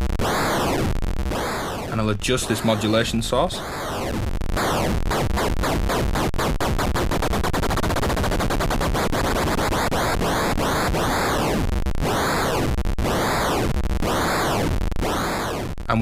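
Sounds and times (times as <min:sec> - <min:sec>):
rapid stream of digital clicks: 0:00.0 - 0:15.9
noise sweeping up and down: 0:00.0 - 0:16.0.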